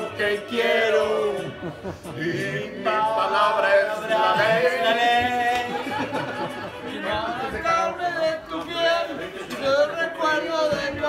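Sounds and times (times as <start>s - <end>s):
man singing unaccompanied: 2.2s - 6.0s.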